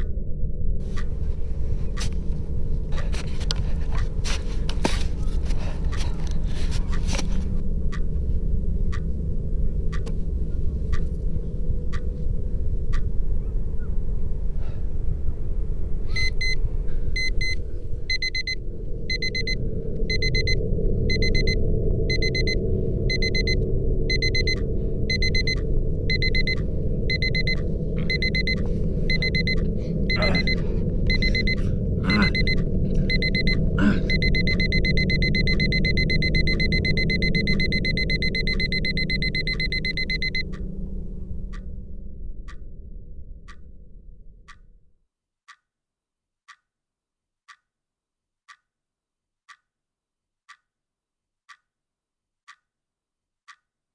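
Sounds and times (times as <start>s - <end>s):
low rumble: 0.0s - 45.0s
alarm clock beeping: 16.1s - 16.6s, 17.2s - 40.8s.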